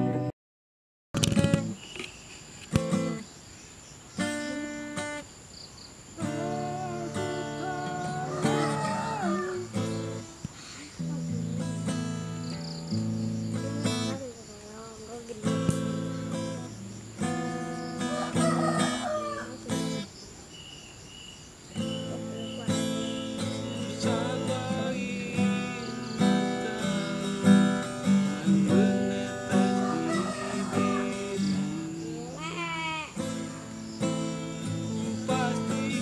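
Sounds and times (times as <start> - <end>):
acoustic guitar playing: 0.0 - 0.3, 1.2 - 3.3, 4.2 - 5.2, 6.2 - 20.2, 21.7 - 36.0.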